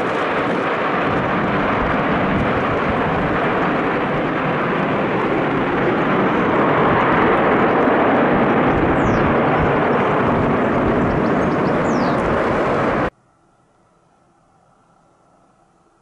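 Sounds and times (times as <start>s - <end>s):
jet engines roaring: 0.0s - 13.2s.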